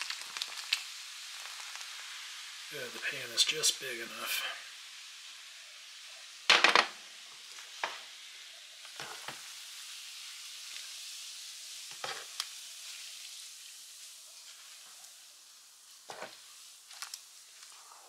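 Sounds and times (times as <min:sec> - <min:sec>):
beer foaming: 0:00.0 - 0:18.0
chili sizzling in a pan: 0:00.0 - 0:18.0
glass bottles clinking: 0:06.5 - 0:06.9.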